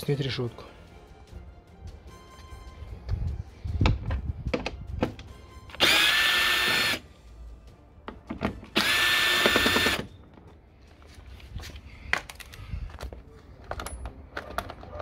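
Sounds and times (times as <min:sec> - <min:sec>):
cordless drill motor whine: 0:05.8 - 0:07.0, 0:08.8 - 0:10.1
handling clicks and knocks: 0:12.2 - 0:15.0.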